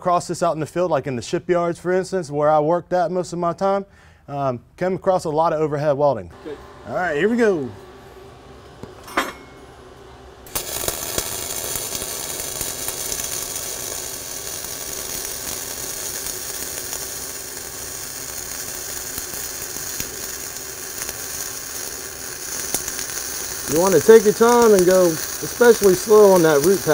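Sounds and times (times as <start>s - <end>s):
welding arc crackling: 9.7s - 26.9s.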